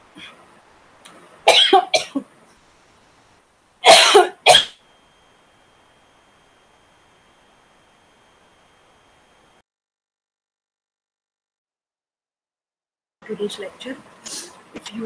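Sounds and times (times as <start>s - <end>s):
woman coughing: 1.5s - 2.3s, 3.8s - 4.8s.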